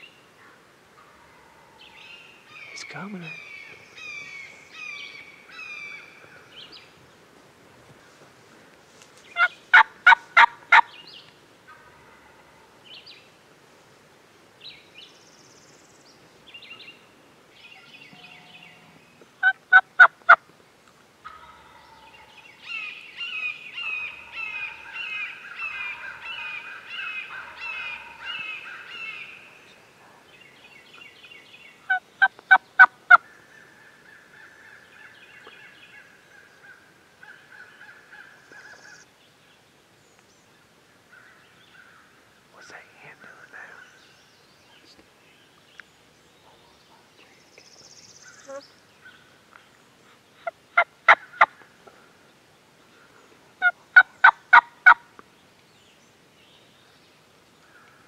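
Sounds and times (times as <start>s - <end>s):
songbirds chirping: 0.0s - 58.0s
turkey yelping: 9.4s - 10.9s.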